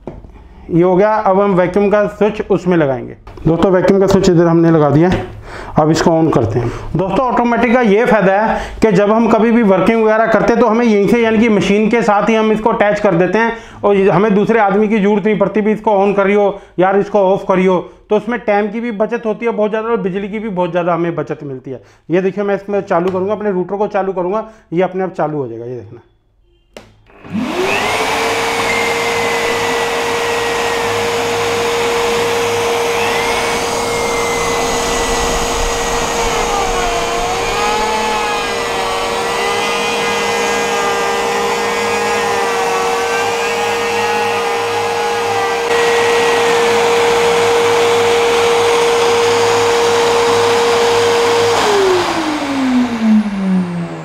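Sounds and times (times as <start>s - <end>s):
router bit cutting wood: 27.1s - 54.0s
router high whine: 27.1s - 54.0s
rush of suction air: 32.9s - 39.9s.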